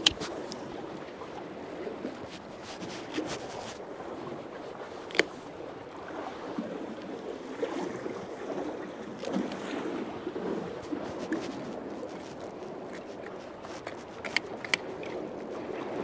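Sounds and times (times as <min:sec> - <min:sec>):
water lapping against pier: 0:00.0 - 0:16.0.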